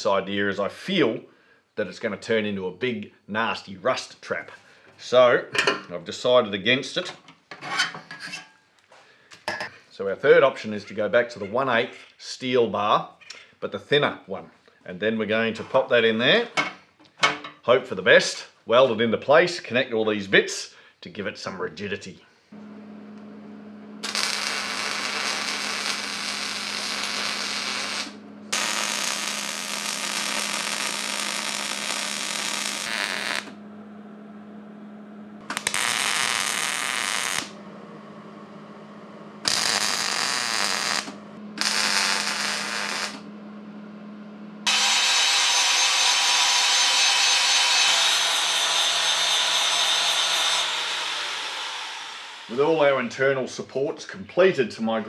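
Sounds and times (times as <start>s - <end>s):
welder humming: 22.6s - 52.8s
welding arc crackling: 23.1s - 33.6s, 35.4s - 37.6s, 39.4s - 43.3s, 44.6s - 48.9s
angle grinder grinding steel: 24.0s - 33.6s, 35.4s - 37.6s, 39.4s - 43.2s, 44.6s - 52.8s.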